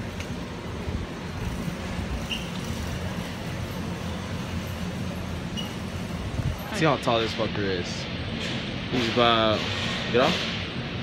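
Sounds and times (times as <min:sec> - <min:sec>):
rushing background noise: 0:00.0 - 0:11.0.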